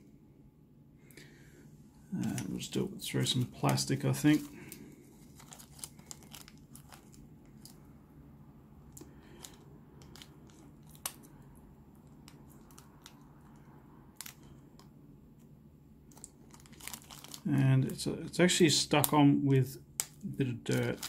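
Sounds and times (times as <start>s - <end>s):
low steady hum: 0.0s - 21.0s
plastic sheet crinkling: 2.2s - 7.8s, 16.1s - 18.0s, 20.6s - 21.0s.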